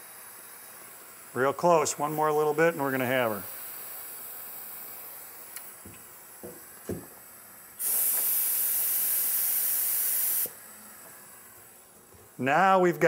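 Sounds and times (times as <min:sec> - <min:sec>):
spray gun hissing: 0:00.0 - 0:11.6
soft knocks: 0:05.9 - 0:07.1.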